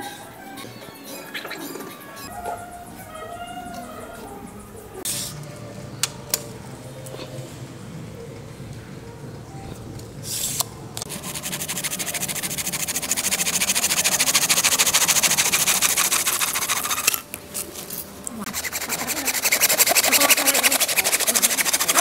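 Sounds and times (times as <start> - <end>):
hand scraping strokes: 10.3 - 22.0.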